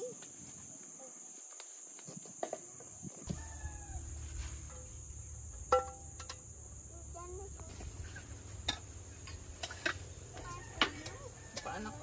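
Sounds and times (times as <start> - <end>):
crickets droning: 0.0 - 12.0
rooster crowing: 3.2 - 4.6, 10.4 - 12.0.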